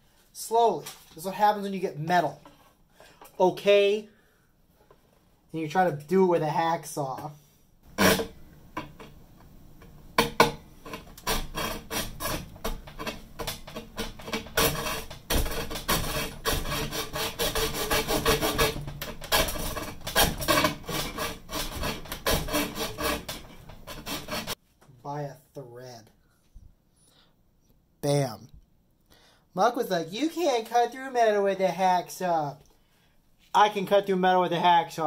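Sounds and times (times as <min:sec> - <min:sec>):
hacksaw cutting metal rod: 0:10.2 - 0:24.6.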